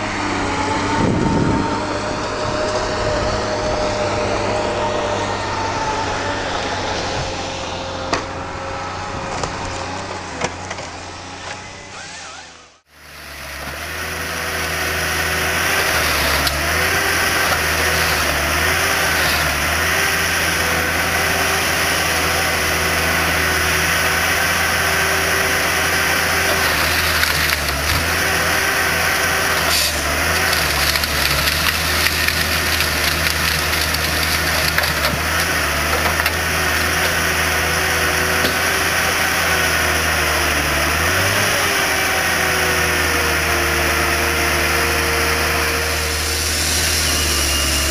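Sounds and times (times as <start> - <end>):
forest harvester engine running: 0.0 - 47.9
high machine whine: 45.6 - 47.9.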